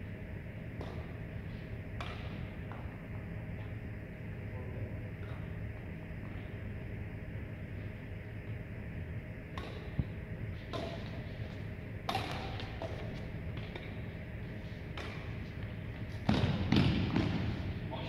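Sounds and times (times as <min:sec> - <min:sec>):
racket hitting shuttlecock: 0:00.8 - 0:01.2, 0:02.0 - 0:03.1, 0:09.5 - 0:14.1, 0:14.8 - 0:15.6, 0:16.2 - 0:17.7.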